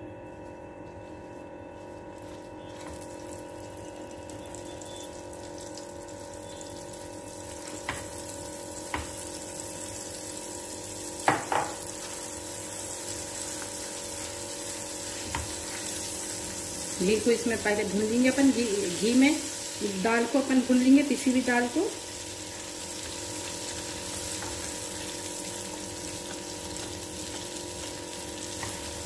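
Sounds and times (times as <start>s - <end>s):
paste sizzling in a frying pan: 1.8s - 29.0s
knocks against a pan: 11.2s - 11.8s.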